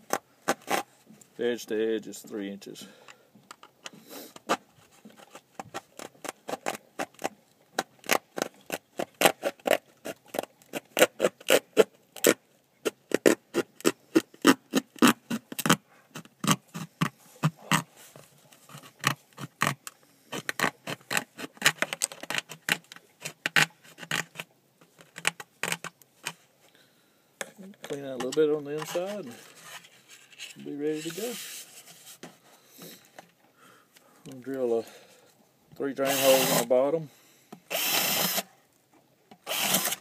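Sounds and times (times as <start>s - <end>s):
jigsaw sawing through gourd shell: 36.0s - 36.7s, 37.7s - 38.5s, 39.4s - 40.0s.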